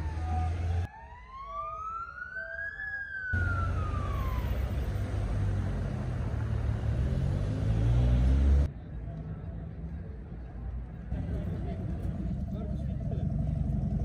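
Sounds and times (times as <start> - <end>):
emergency siren wailing: 0.0 - 6.5
low city traffic rumble: 3.3 - 14.0.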